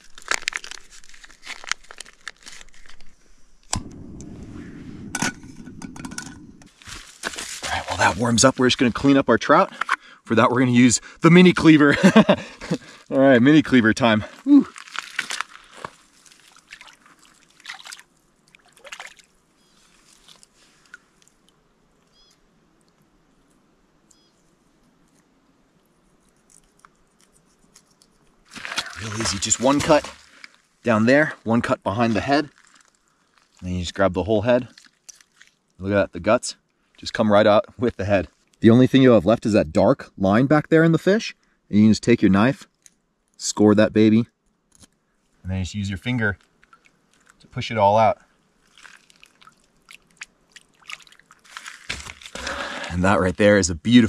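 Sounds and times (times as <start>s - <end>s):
foil pouch crinkling: 0.0s - 3.2s, 14.6s - 17.9s, 26.2s - 30.7s, 32.4s - 33.6s, 34.7s - 35.6s, 48.6s - 53.0s
water splashing and trickling: 13.7s - 21.5s, 28.4s - 31.0s, 34.4s - 35.8s, 46.2s - 53.1s
faint water drips: 15.0s - 19.3s, 34.6s - 35.8s, 46.4s - 47.6s, 48.2s - 52.9s.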